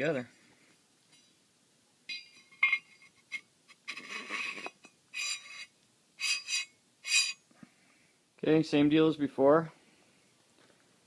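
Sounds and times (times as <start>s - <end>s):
metallic scrapes with ringing edge: 2.1s - 7.4s.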